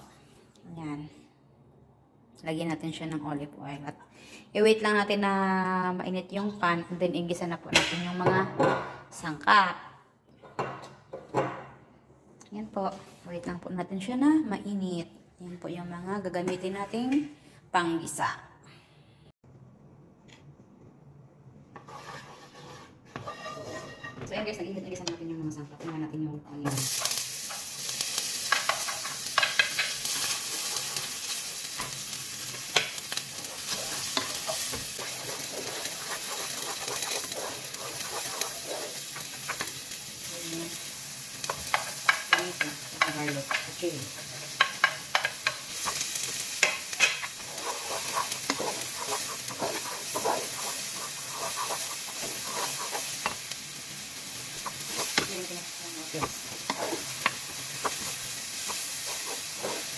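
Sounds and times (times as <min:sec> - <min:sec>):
wooden spoon scraping and clacking: 0:21.8 - 0:24.2, 0:28.5 - 0:31.1, 0:32.8 - 0:39.8, 0:41.4 - 0:53.5, 0:54.6 - 0:59.9
vegetables sizzling in oil: 0:26.6 - 0:59.9.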